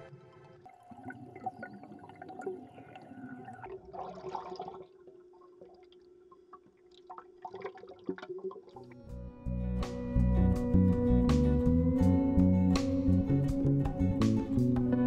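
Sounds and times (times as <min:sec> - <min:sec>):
water gurgling and splashing: 0:00.4 - 0:09.0.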